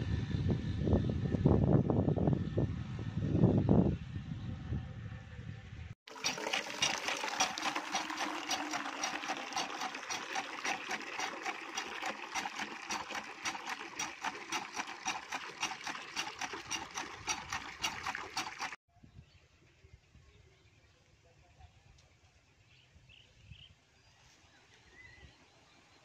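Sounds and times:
hand pump being worked: 6.1 - 18.8
water gushing onto ground: 6.1 - 18.8.

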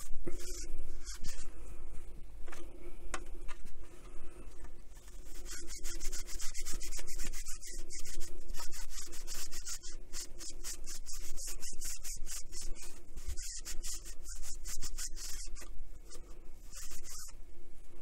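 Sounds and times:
wipe rubbing textured case: 4.9 - 15.7, 16.6 - 17.4.

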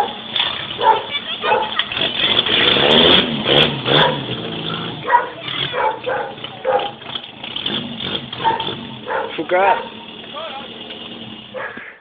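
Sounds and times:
small car engine running: 0.0 - 12.0
dog barking: 0.8 - 1.8, 3.9 - 4.3, 5.0 - 7.0, 8.4 - 10.0, 11.5 - 12.0.

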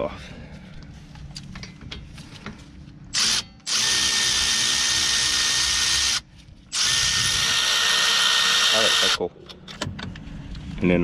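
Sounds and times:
cordless ratchet spinning: 3.2 - 9.2.

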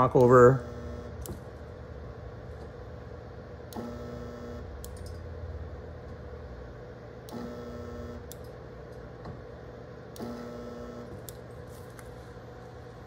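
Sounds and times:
welder electrical hum: 0.0 - 13.0
spot welder click: 3.7 - 4.0, 8.2 - 8.6, 10.1 - 12.0.

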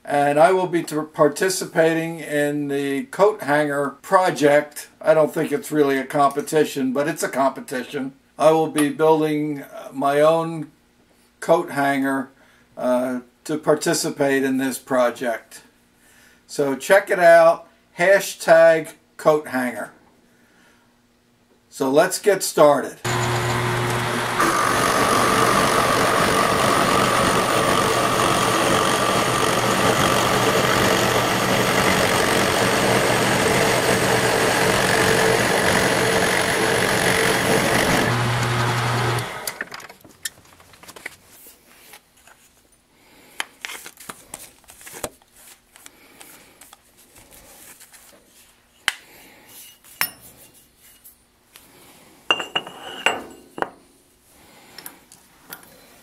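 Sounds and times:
milling machine cutting metal: 23.1 - 39.6.

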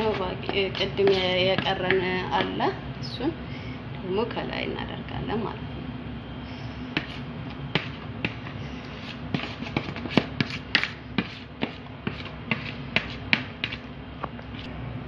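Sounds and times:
metal spoon scraping a bowl: 0.0 - 1.9
steady low hum: 0.0 - 15.0.

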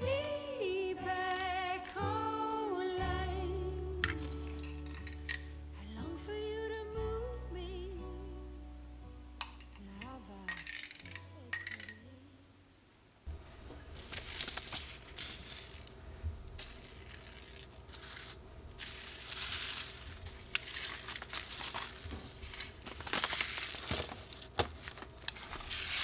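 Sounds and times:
paper packets rustling: 13.8 - 26.0.

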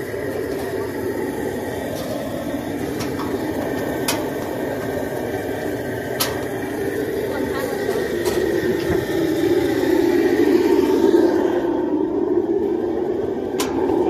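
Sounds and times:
steady mechanical drone: 0.0 - 14.0
sharp metallic clicks and knocks: 2.9 - 5.0.

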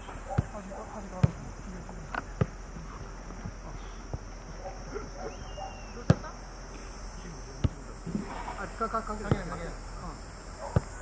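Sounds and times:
players calling: 0.0 - 11.0.

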